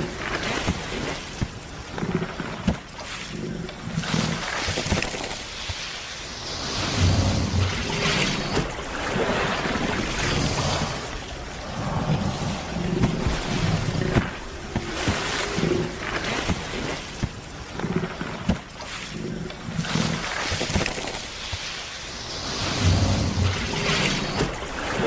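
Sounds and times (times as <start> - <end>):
water splashing and churning: 0.0 - 25.0
wind buffeting microphone: 8.6 - 16.0.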